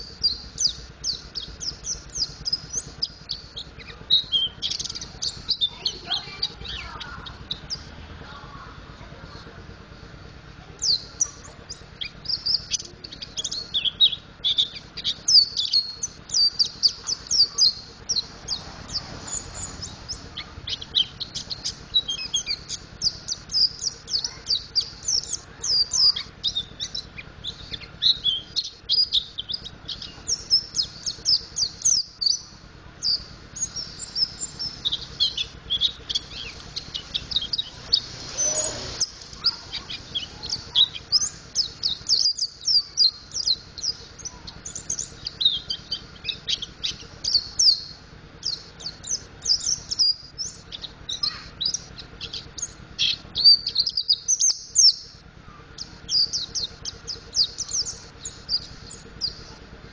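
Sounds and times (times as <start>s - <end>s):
bird chirping and twittering: 0.0s - 59.9s
burst of noise: 36.0s - 41.9s.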